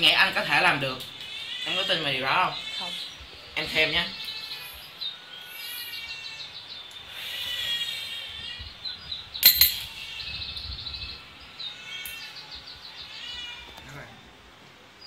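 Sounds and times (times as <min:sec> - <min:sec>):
bird chirping: 0:01.2 - 0:13.9
coin clinking in a glass: 0:09.4 - 0:09.9.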